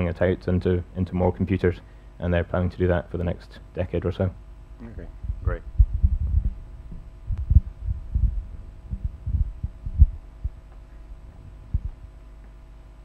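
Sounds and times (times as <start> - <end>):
steady electrical hum: 0.0 - 13.0
microphone handling thumps: 5.1 - 12.6.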